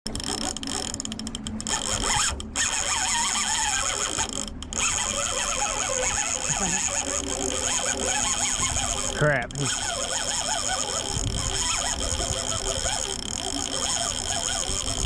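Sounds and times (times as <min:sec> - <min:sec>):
fishing reel drag buzzing: 0:00.1 - 0:15.0.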